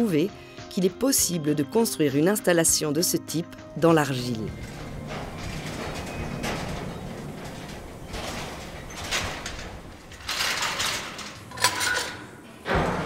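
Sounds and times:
lift cage rattling and sliding: 0:03.9 - 0:13.0.

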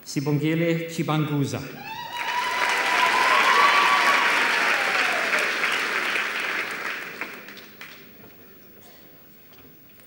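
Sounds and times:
audience applauding: 0:01.9 - 0:08.2.

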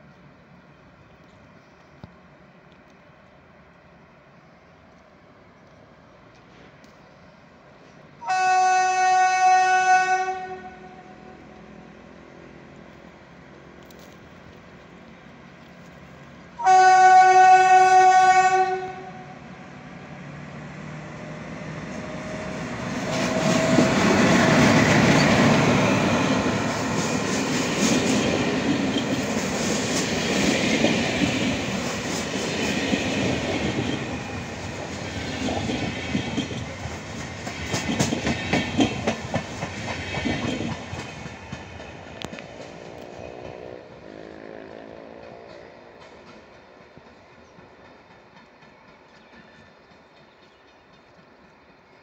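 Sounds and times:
locomotive horn blast: 0:08.2 - 0:11.4, 0:16.6 - 0:19.4, 0:43.1 - 0:46.0
passing coaches rumbling: 0:16.6 - 0:47.1.

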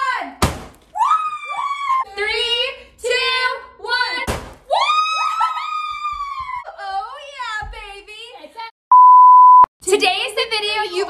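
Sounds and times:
balloons popping: 0:00.4 - 0:01.0
women squealing and shrieking: 0:01.0 - 0:02.1, 0:04.7 - 0:06.7.

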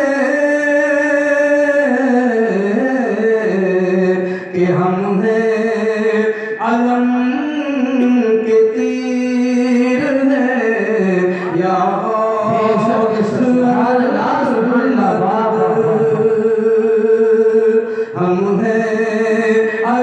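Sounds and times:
man singing long held notes: 0:00.0 - 0:20.0.

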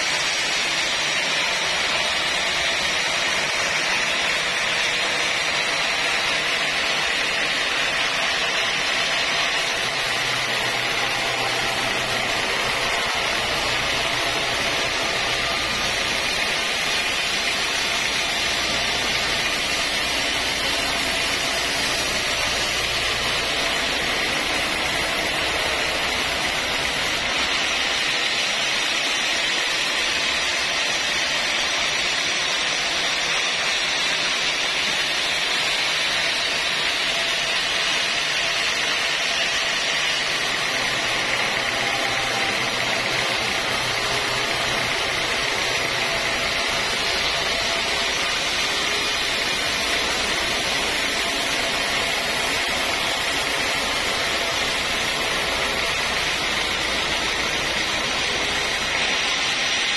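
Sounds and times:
band saw cutting log: 0:00.0 - 0:59.9.

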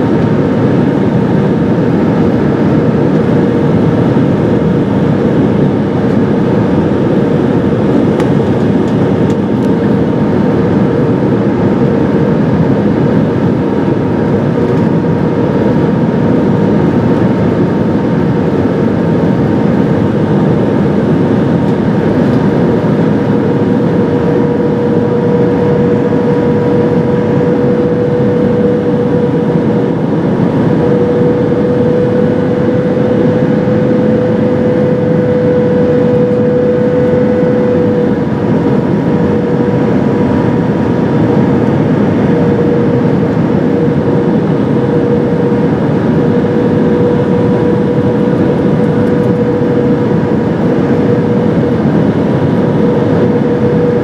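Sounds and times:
cabin airflow rushing: 0:00.0 - 0:54.0
jet engine hum: 0:00.0 - 0:54.0.

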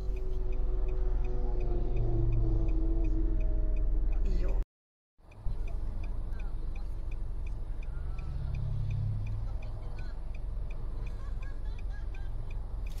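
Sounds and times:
low engine rumble: 0:00.0 - 0:04.6, 0:05.2 - 0:13.0.

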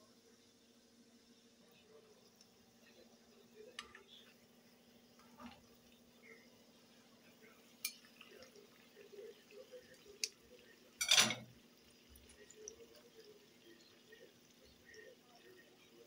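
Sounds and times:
frying oil bubbling: 0:00.0 - 0:16.0
metal tongs clicking against pan: 0:10.2 - 0:10.4, 0:11.0 - 0:11.5.

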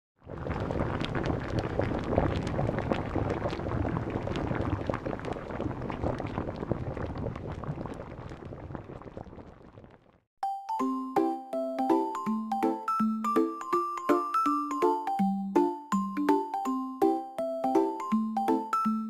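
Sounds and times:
broth boiling and bubbling: 0:00.2 - 0:10.3.

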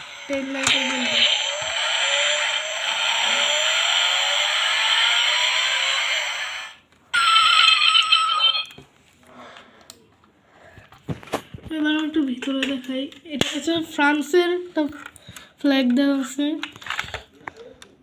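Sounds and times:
tinny toy engine rev effect: 0:00.0 - 0:08.6
high electronic tone: 0:07.2 - 0:08.8.

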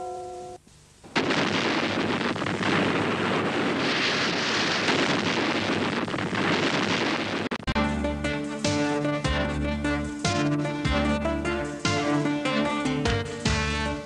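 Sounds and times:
explosive charges blasting: 0:01.2 - 0:07.7.

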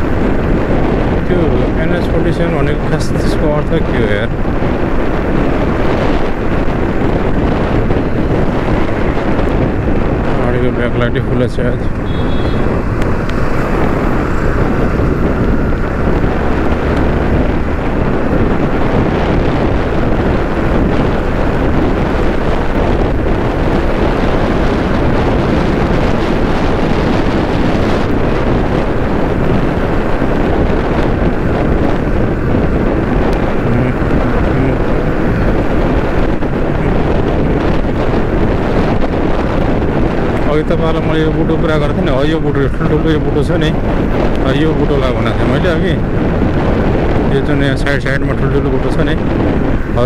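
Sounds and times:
motorcycle running: 0:00.0 - 0:50.0
wind rushing over microphone: 0:00.0 - 0:50.0.

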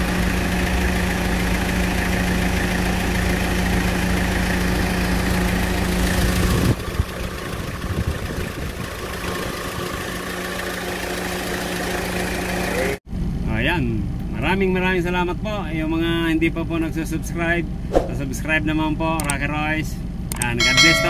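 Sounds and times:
van engine idling: 0:00.0 - 0:13.0
low engine rumble: 0:00.0 - 0:21.0.

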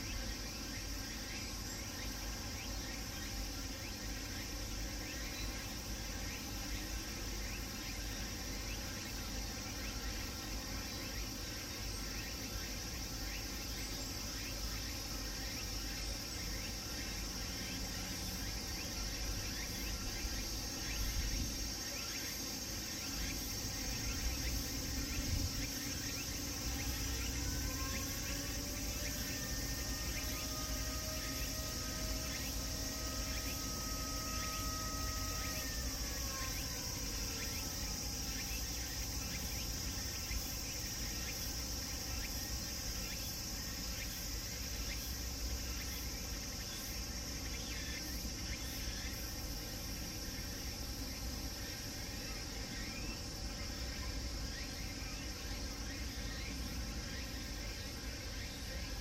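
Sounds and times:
cicadas chirring: 0:00.0 - 0:59.0
siren rising wail: 0:27.1 - 0:37.7.

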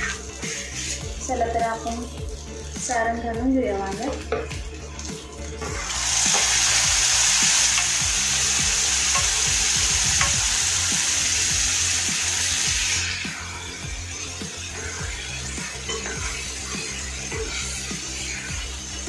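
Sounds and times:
hot oil sizzling: 0:00.0 - 0:19.0.

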